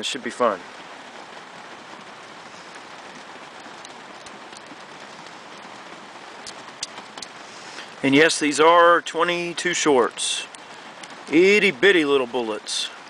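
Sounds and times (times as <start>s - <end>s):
background hiss: 0.0s - 13.0s.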